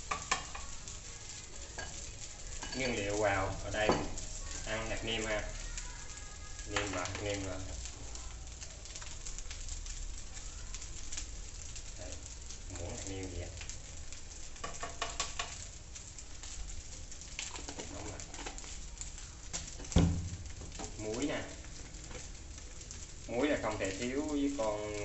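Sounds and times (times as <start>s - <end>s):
food frying in a pan: 0.0s - 25.0s.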